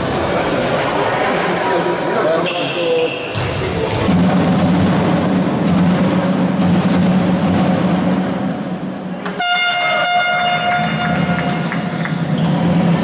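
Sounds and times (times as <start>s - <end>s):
low hall hum: 0.0s - 13.0s
loud horn blast: 9.2s - 11.9s.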